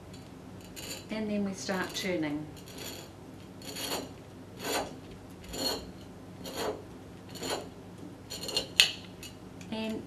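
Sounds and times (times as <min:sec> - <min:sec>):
bottle cutter scraping glass: 0:01.8 - 0:07.7, 0:08.3 - 0:08.8.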